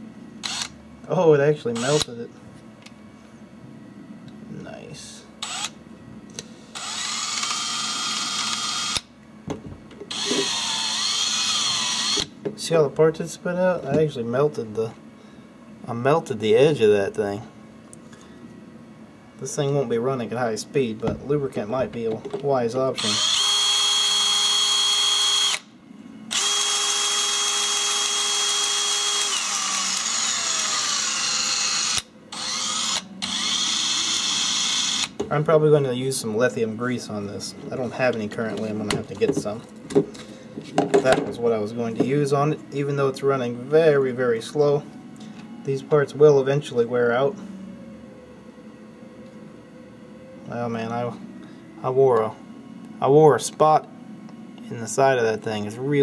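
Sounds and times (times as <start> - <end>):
cordless drill motor whine: 0.4 - 0.8, 1.8 - 2.1, 5.4 - 5.8, 6.4 - 9.1, 10.1 - 12.4, 23.0 - 25.7, 26.3 - 35.2.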